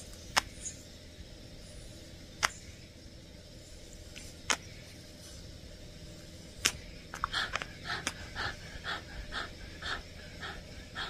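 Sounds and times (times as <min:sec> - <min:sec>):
dog panting: 0:07.2 - 0:11.0.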